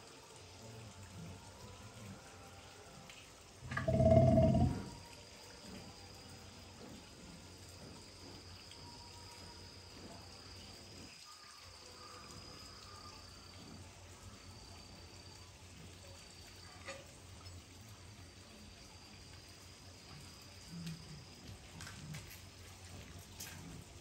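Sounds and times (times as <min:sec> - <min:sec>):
animal low bellow: 0:03.6 - 0:05.0.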